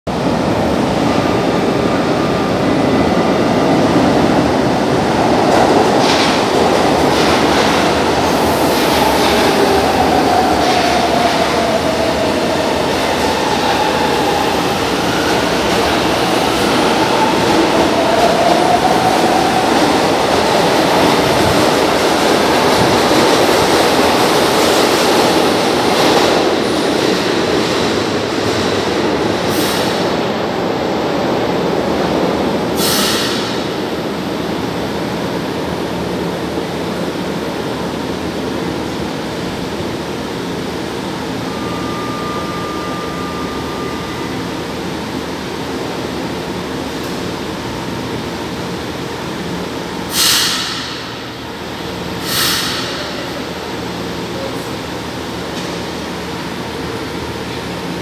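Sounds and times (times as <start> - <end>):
metro train rumbling: 0.1 - 58.0
train whine gliding in pitch: 41.0 - 45.1.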